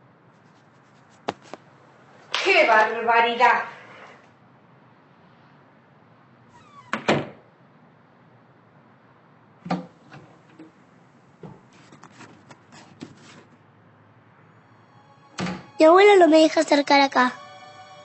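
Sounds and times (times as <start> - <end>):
door creaking and shutting: 6.5 - 7.4, 9.6 - 10.7, 15.3 - 15.8.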